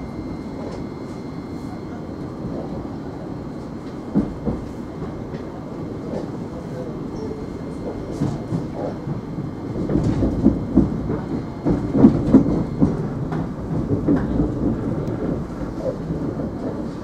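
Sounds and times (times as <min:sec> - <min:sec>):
train interior rumble: 0:00.0 - 0:17.0
wheels knocking on track: 0:07.7 - 0:17.0.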